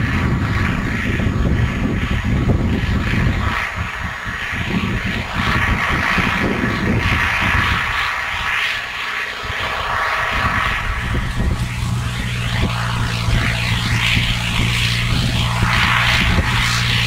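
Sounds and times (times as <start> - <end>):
tractor diesel engine droning: 9.4 - 17.0.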